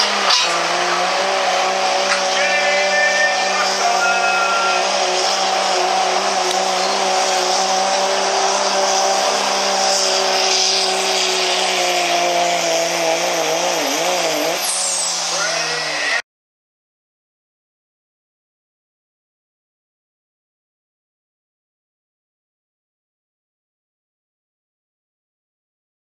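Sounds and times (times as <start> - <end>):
high whine gliding down: 0.0 - 16.2
pickup engine high-revving drone: 0.0 - 16.2.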